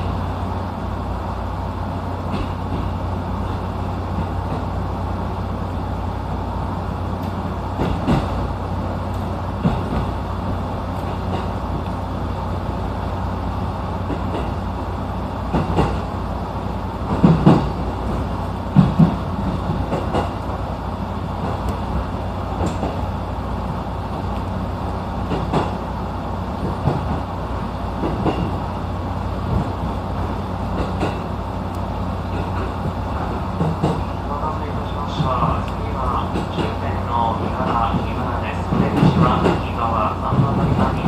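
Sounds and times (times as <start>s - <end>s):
train rumble and hum: 0.0s - 41.0s
wheels clacking over rail joints: 7.2s - 11.9s, 14.0s - 14.6s, 15.5s - 16.1s, 17.0s - 20.6s, 21.4s - 23.1s, 25.2s - 25.9s, 28.0s - 28.7s, 29.4s - 41.0s.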